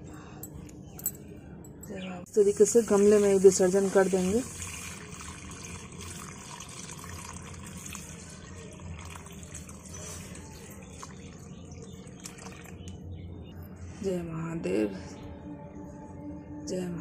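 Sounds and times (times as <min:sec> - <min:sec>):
water pouring and splashing: 0:02.7 - 0:11.4.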